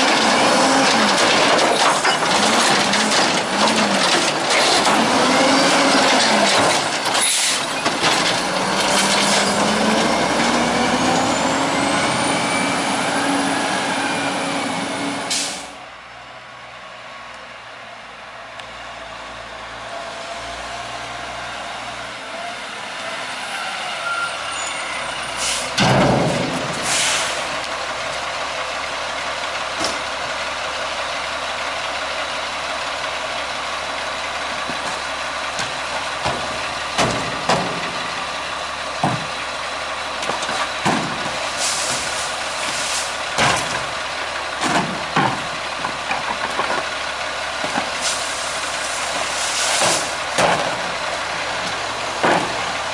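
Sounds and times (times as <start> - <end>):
air brake hiss: 15.3 - 15.8, 25.3 - 25.8, 26.8 - 27.4, 41.6 - 43.2
diesel engine idling: 24.5 - 52.9.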